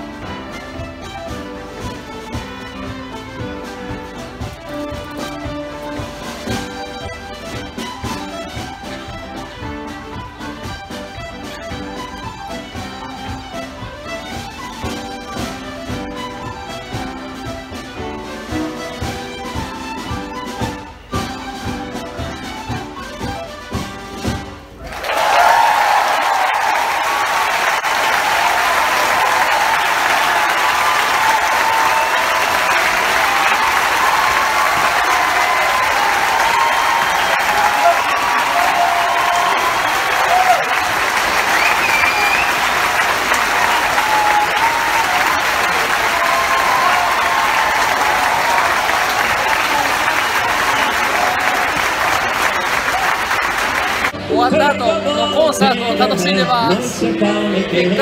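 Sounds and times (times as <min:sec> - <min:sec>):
large audience applauding: 0:24.8 - 0:54.2.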